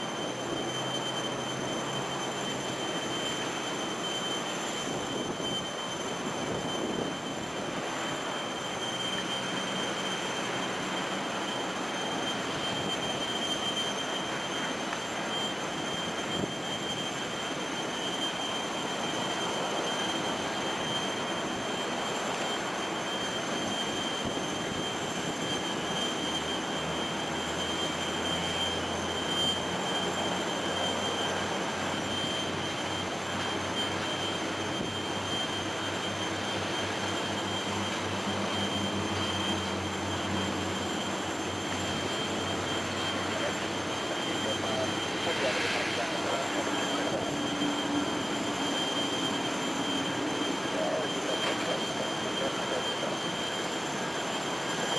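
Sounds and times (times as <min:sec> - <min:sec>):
jet engines whining: 0:00.0 - 0:54.9.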